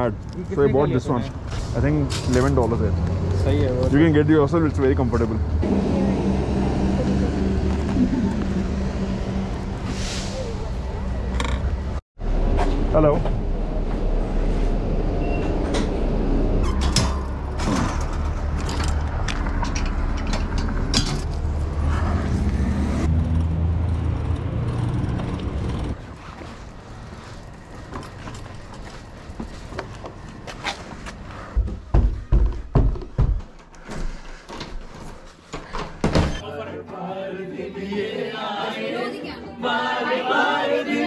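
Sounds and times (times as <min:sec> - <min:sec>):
bus engine running: 0:03.6 - 0:26.0
thumps and knocks: 0:31.6 - 0:33.7.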